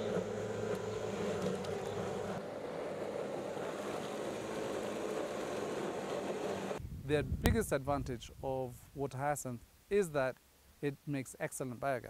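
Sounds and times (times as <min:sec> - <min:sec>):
motor humming steadily: 0:00.0 - 0:06.8.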